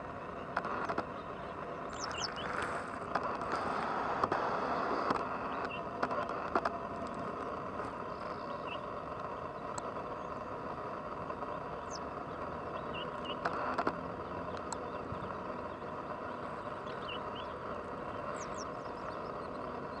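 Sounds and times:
outdoor wetland background: 0.0s - 20.0s
sharp ticks: 0.3s - 20.0s
faint high bird chirps: 0.4s - 2.6s, 11.5s - 13.6s, 14.2s - 20.0s.

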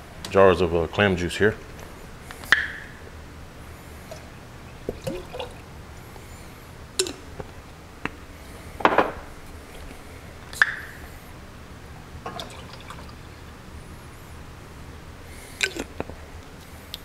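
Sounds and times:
liquid glugging and splashing: 4.0s - 5.8s, 12.2s - 13.3s, 15.6s - 16.0s.

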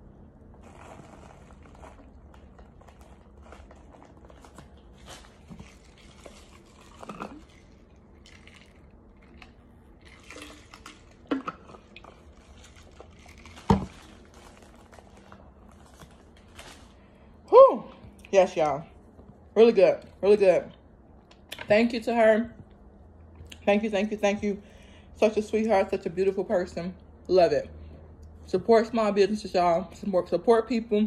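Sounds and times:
person chewing crunchy food: 0.5s - 17.2s.

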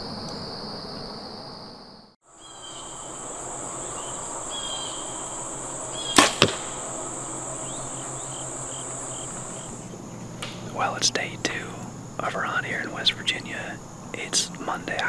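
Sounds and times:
high insect buzz: 0.0s - 15.0s
arrow striking target: 6.1s - 6.8s
bowstring snap: 6.1s - 6.8s.

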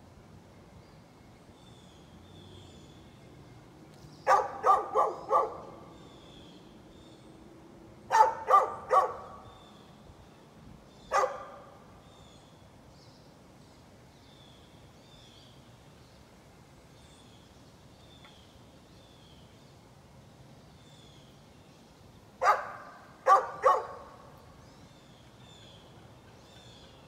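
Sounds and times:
dog barking: 4.3s - 5.8s, 8.1s - 9.4s, 11.1s - 11.7s, 22.4s - 24.1s.

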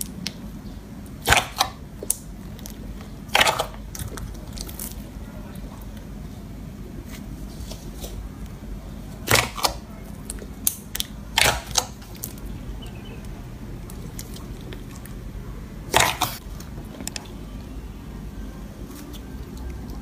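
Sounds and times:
slime popping and crackling: 1.0s - 5.2s, 9.2s - 12.5s, 15.9s - 17.3s.

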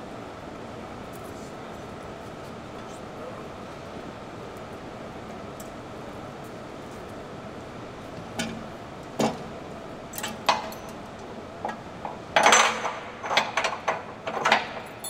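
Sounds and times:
workshop hum: 0.0s - 15.0s.

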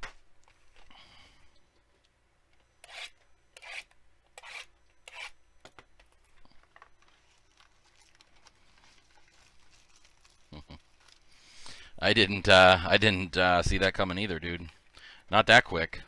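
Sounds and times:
wrapper rustling: 6.2s - 11.7s.

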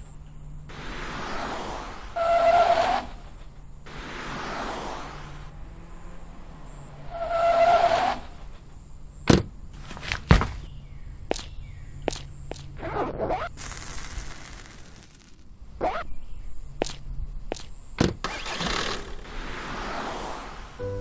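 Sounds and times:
tyre squeal: 1.2s - 3.4s, 6.8s - 8.5s
heavy thumps: 9.3s - 10.7s
light knocks and scuffs: 9.3s - 11.5s.

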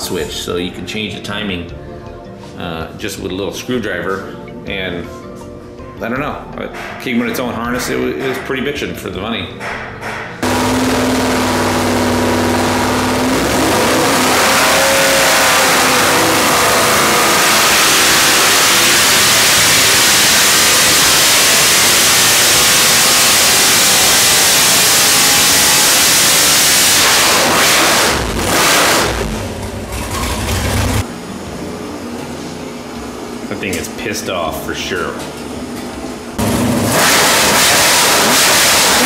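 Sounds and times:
engine revving at full throttle: 10.4s - 31.0s, 36.4s - 39.0s.

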